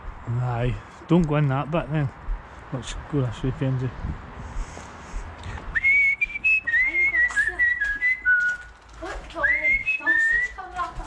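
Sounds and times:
person whistling a tune: 5.7s - 8.7s, 9.4s - 10.5s
footsteps on hard floor: 9.0s - 11.0s.

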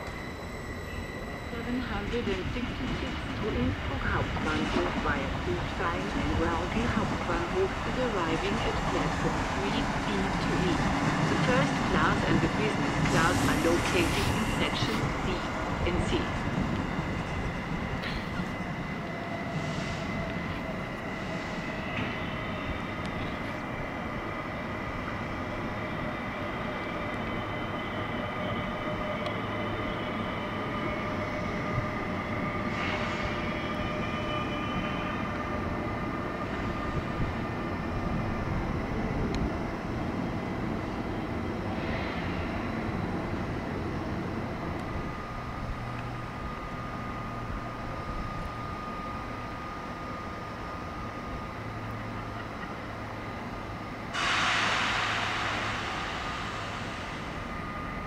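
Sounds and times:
train rail rumble: 0.0s - 58.0s
brief hisses: 54.2s - 57.5s.

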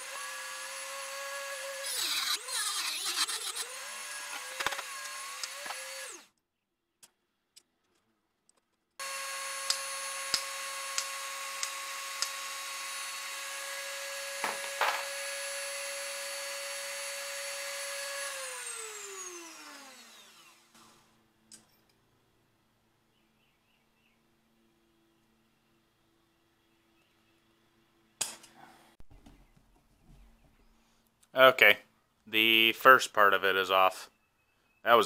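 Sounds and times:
rotary tool high whine: 0.0s - 6.3s, 9.0s - 21.2s.

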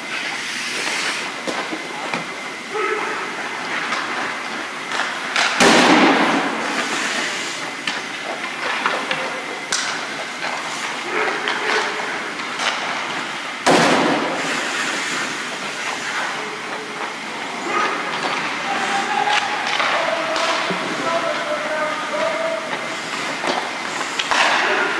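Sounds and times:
skate blades scraping ice: 0.1s - 1.8s, 2.8s - 13.4s, 14.0s - 24.9s
hockey stick striking puck: 4.9s - 7.0s, 13.7s - 15.3s, 17.7s - 21.5s, 22.1s - 24.9s
sticks and pucks clicking on ice: 14.8s - 24.8s.

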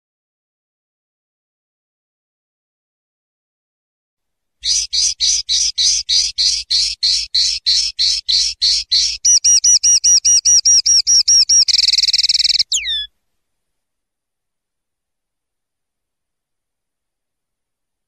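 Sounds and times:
linnet singing: 4.6s - 13.1s.

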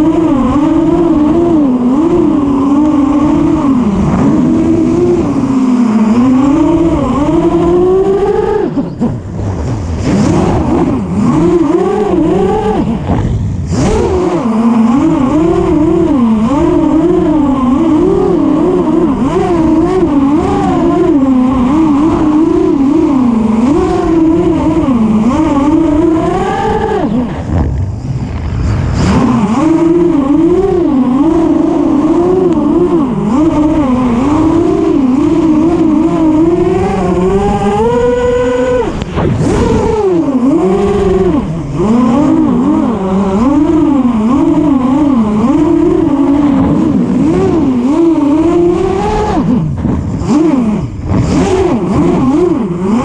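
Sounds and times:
quadcopter motors whining: 0.0s - 53.0s.

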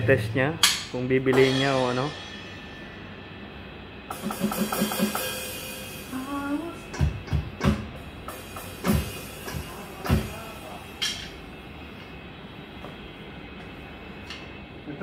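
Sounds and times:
cymbal crashes: 0.0s - 6.7s, 8.0s - 11.2s
electronic drum kit playing: 0.0s - 11.1s.

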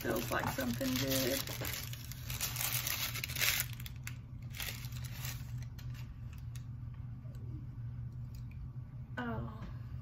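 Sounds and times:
paper and cardboard rustling: 0.0s - 3.9s.

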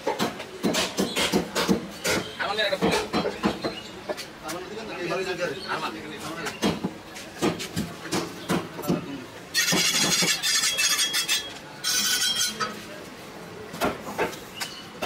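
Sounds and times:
knife chopping on wooden block: 0.1s - 3.7s.

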